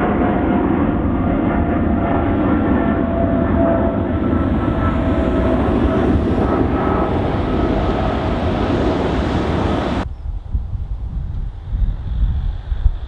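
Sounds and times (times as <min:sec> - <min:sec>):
jet engines roaring and whining: 0:00.0 - 0:10.1
wind rumble on microphone: 0:00.0 - 0:13.0.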